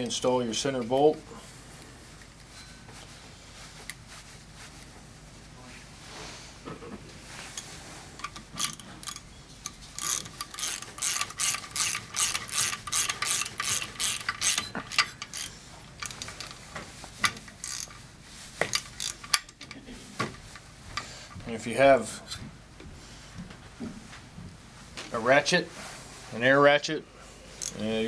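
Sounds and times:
socket ratchet clicking: 8.2 - 16.6, 17.2 - 18.0, 18.6 - 19.8.

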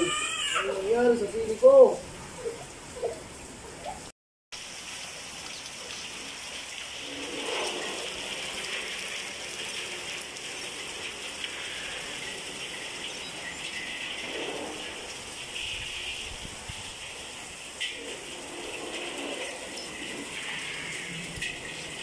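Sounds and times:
heavy rain falling: 4.6 - 22.0.

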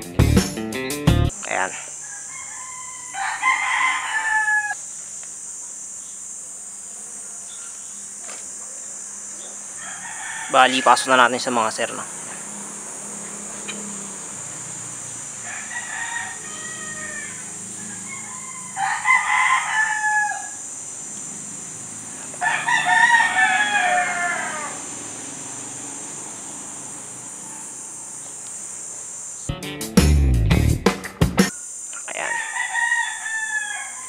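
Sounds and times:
rooster crowing: 1.9 - 4.8, 9.6 - 28.4, 32.1 - 34.0
steady high hiss: 3.0 - 29.5, 31.0 - 32.6.

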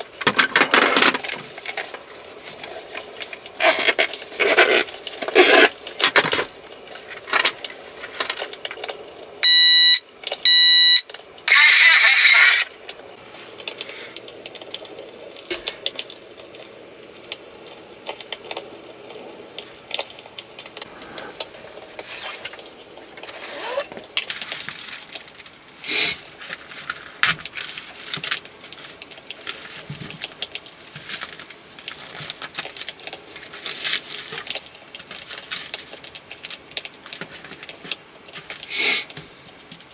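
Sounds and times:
objects clicking and clattering: 0.0 - 9.2, 12.8 - 39.9
loud electronic beeps: 9.4 - 12.6.

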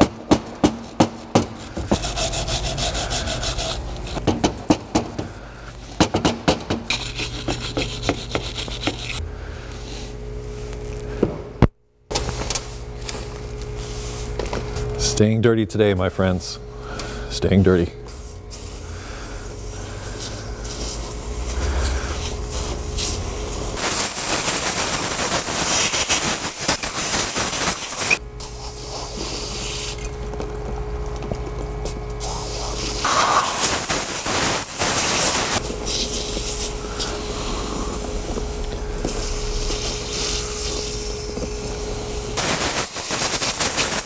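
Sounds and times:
steady low hum: 0.0 - 24.1, 28.2 - 42.4
spray can hissing: 19.4 - 30.0, 32.2 - 44.0.

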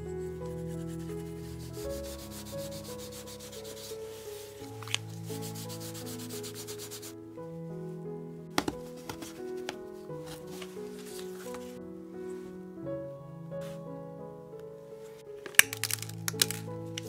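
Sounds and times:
soft piano music: 0.0 - 17.0
sandpaper rubbing leather: 0.8 - 4.5, 5.3 - 7.1.

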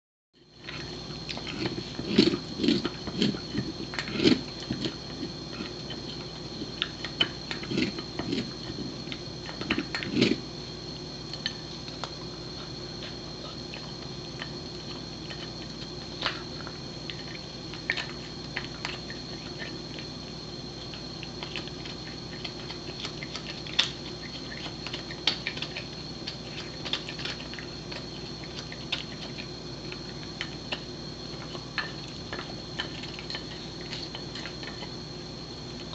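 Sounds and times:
dog teeth gnawing antler: 20.8 - 35.0.

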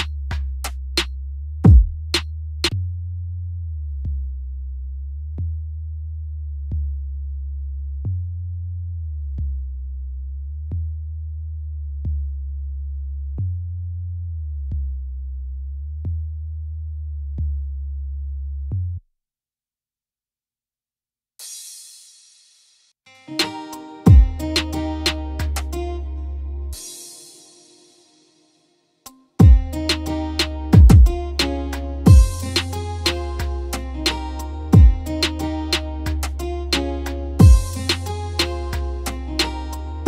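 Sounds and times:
sharp drum machine hits: 1.7 - 2.2, 23.4 - 25.7, 29.4 - 33.5, 34.1 - 35.4, 36.1 - 38.8
slow synth bass line: 24.1 - 26.8, 29.4 - 40.0.

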